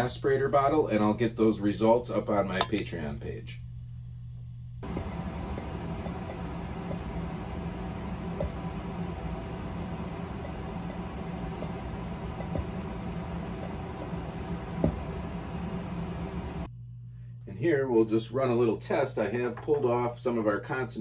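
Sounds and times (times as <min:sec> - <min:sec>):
hot plate hiss and hum: 0:00.0 - 0:16.7
glass beaker ticks and clinks: 0:04.8 - 0:07.1.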